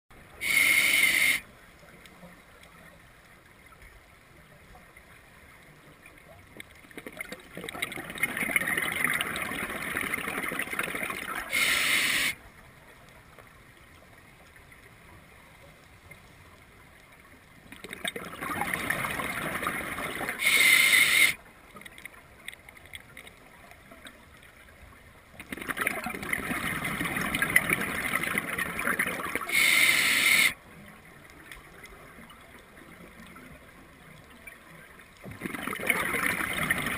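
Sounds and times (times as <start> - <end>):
regulator inhalation hiss: 0.4 - 1.4, 11.5 - 12.4, 20.4 - 21.4, 29.5 - 30.6.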